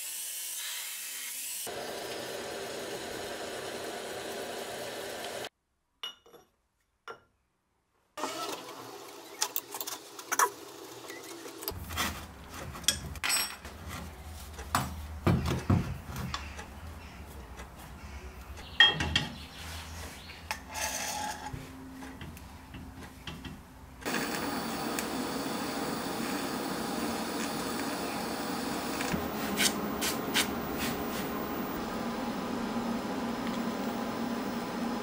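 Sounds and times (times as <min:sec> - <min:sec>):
steady low hum: 0:24.0 - 0:35.0.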